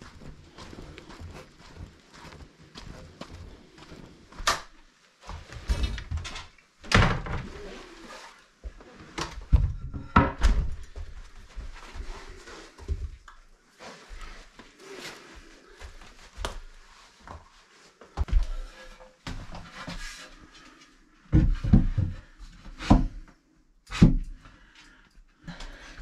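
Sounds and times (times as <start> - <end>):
footsteps: 0.0 - 6.5, 7.4 - 22.4
wooden thunks and knocks: 9.4 - 11.1.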